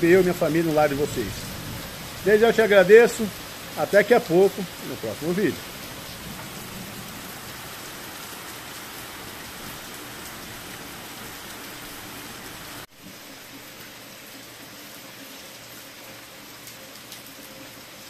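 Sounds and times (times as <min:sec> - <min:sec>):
rain on muddy ground: 0:00.0 - 0:18.0.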